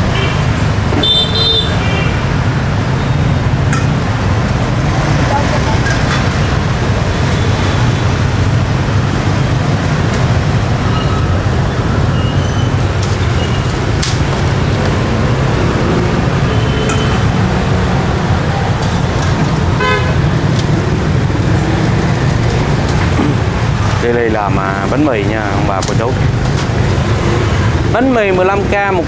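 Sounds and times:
street traffic rumble: 0.0 - 29.0
car horn toots: 1.0 - 2.2, 19.8 - 20.2.

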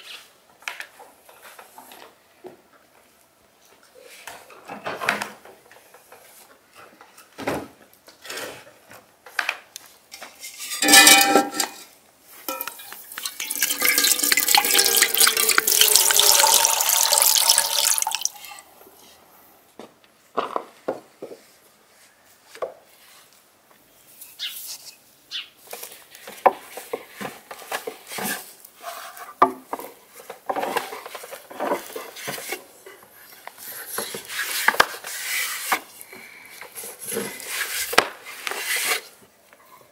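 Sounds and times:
water pouring into metal pot: 12.5 - 18.6.

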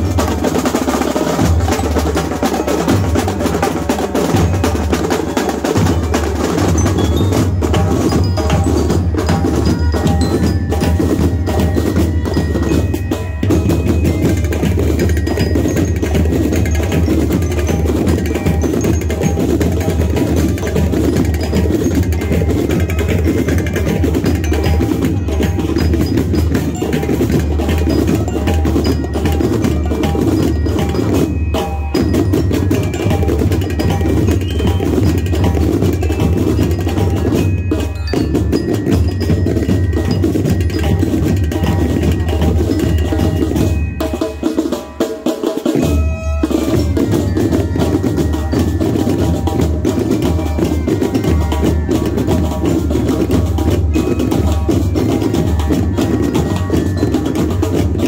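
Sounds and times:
bell lyres melody: 0.0 - 58.0
snare and bass drums marching: 0.0 - 58.0.

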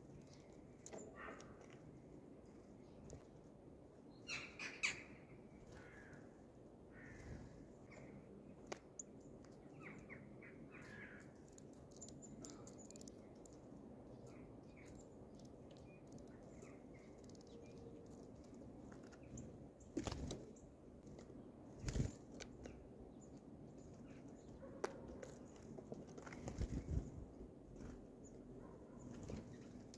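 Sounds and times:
birds pecking and hopping on grain: 0.0 - 4.0, 11.2 - 28.4
small birds chirping: 0.0 - 29.9.

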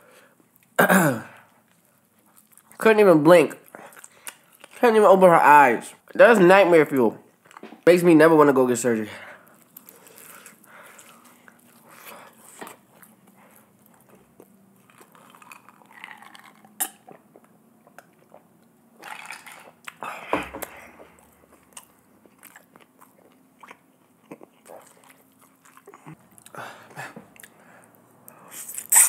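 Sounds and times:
chewing crunchy fried chicken: 1.4 - 2.8, 3.5 - 4.9, 9.4 - 20.1, 20.9 - 29.0
wet mouth clicks: 15.6 - 17.2.

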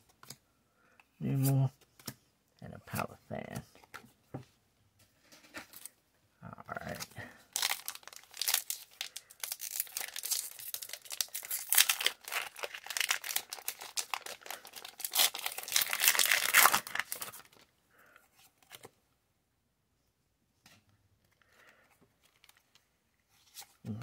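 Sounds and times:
foil wrapper crinkling: 7.6 - 17.6.

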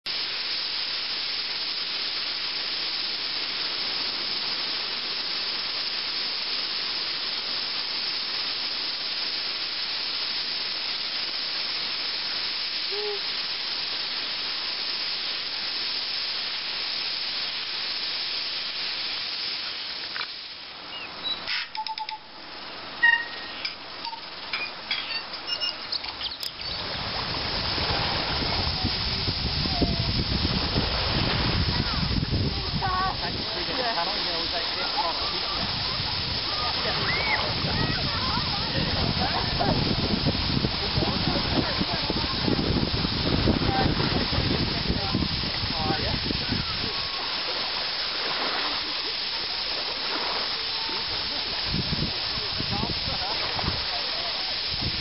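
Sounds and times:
hissing seaside ambience: 0.0 - 55.0
bird chirps and calls: 20.9 - 22.2, 23.0 - 26.8.

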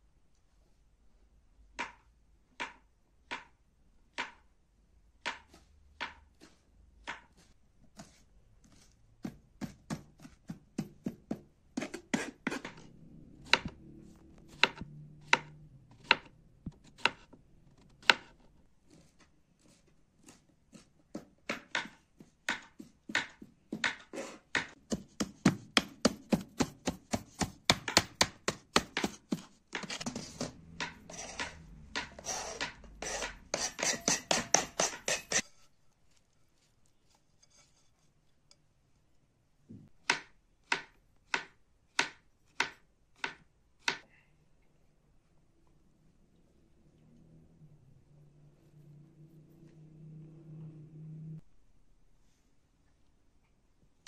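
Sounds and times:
knife chopping on plastic board: 1.8 - 4.5, 5.2 - 35.4, 40.0 - 44.0
rapid chopping of parsley: 5.3 - 12.8, 18.0 - 35.4.

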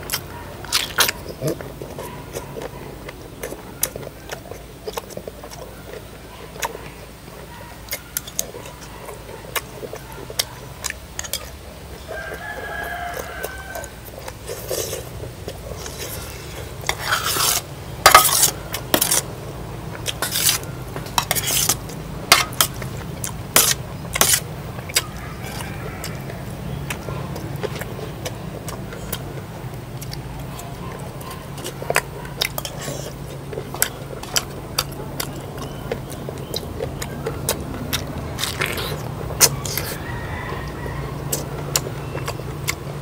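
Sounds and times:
rooster crowing: 12.0 - 14.2, 25.0 - 27.3, 39.4 - 42.3
dishes and utensils clinking: 15.8 - 19.2, 20.1 - 22.8.

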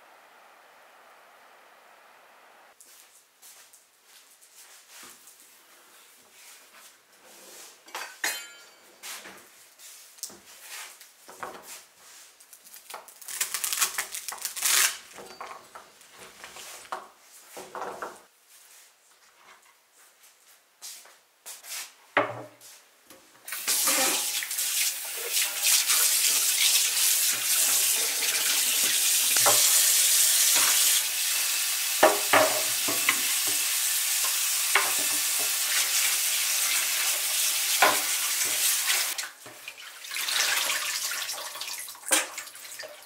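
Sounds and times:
carrot greens rustling: 9.0 - 17.7.

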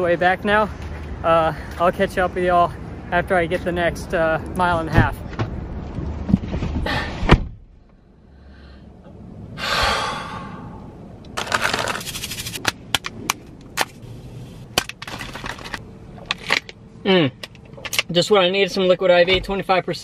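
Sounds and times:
car door shutting: 6.3 - 7.6
out-of-breath exhale: 8.0 - 9.0, 9.6 - 10.9
paper packet crinkling: 11.4 - 12.7.

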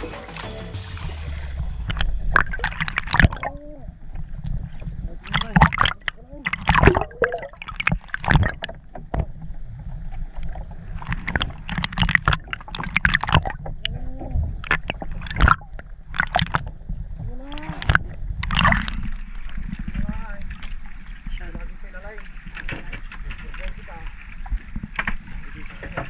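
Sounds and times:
low rumble: 0.0 - 7.7
underwater gurgling and bubbling: 0.9 - 21.8.

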